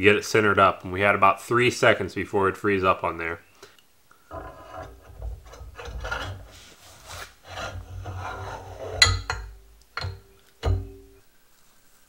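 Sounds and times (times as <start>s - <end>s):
metal gear scraping on shaft: 4.3s - 6.6s, 7.4s - 9.0s
sharp metal clank: 9.0s - 11.2s.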